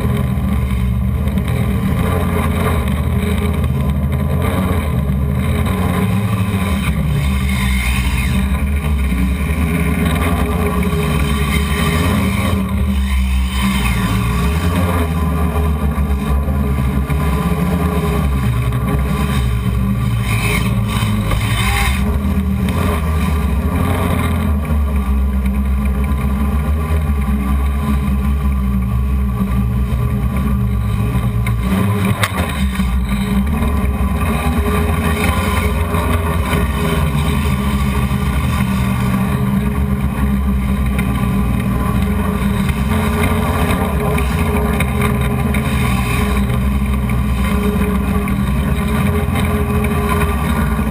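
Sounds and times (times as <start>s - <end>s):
drone motors humming: 0.0s - 50.9s.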